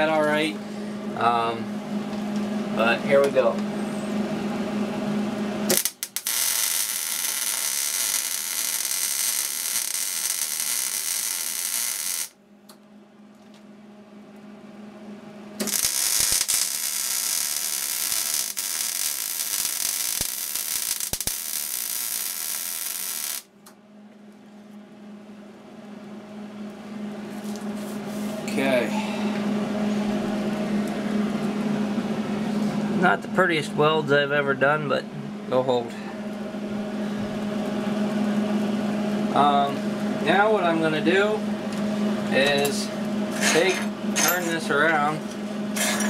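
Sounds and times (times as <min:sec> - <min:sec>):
arc welding crackle: 0:05.7 - 0:12.4, 0:15.6 - 0:23.5
low steady hum: 0:21.6 - 0:46.0.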